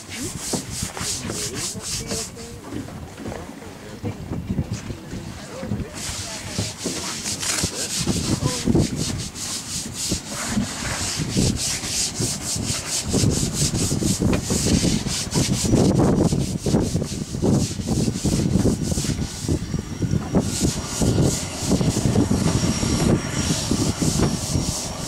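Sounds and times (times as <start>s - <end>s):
hiss of water spray: 0.0s - 2.1s
floatplane engine and propeller: 0.0s - 25.0s
wind buffeting microphone: 0.0s - 25.0s.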